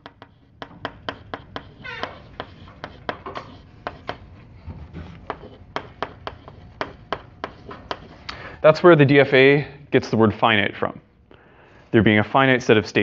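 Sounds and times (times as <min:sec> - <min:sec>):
chalk tapping and scratching on blackboard: 0:00.0 - 0:08.3.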